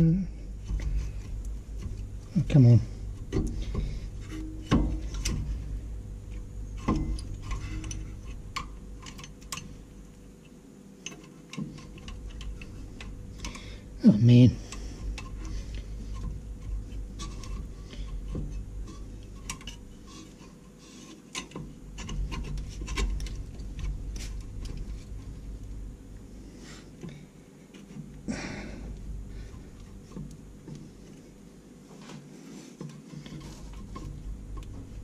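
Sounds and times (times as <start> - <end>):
metal scraping rub: 0.4 - 9.2, 14.6 - 25.4.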